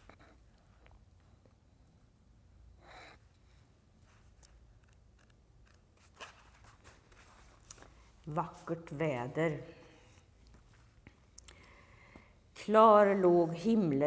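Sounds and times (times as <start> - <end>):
paper pages rustling: 5.2 - 8.2.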